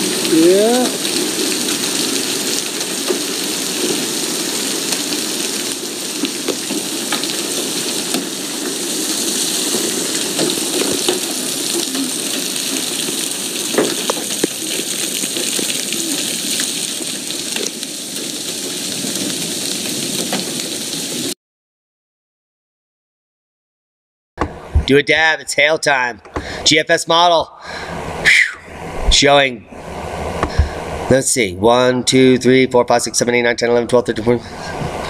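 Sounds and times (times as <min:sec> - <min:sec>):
heavy rain hissing: 0:00.0 - 0:21.4, 0:27.6 - 0:31.2, 0:34.3 - 0:35.0
hailstones clicking on hard surfaces: 0:00.9 - 0:21.0.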